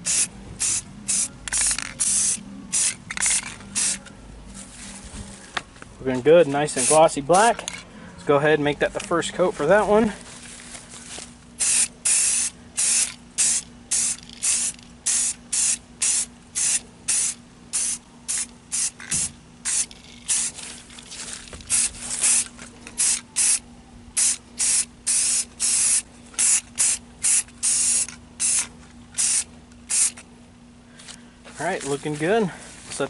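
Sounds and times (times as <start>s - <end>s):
aerosol spray can hissing: 0.0s - 4.0s, 11.6s - 20.6s, 24.2s - 30.2s.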